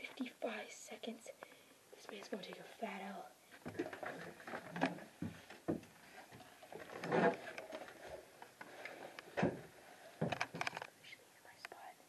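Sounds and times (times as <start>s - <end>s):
camera handling rustle: 10.2s - 11.0s.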